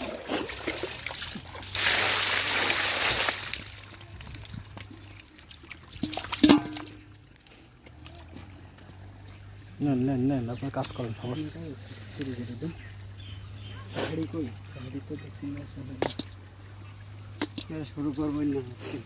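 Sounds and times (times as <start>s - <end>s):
water splashing: 0.0s - 7.4s.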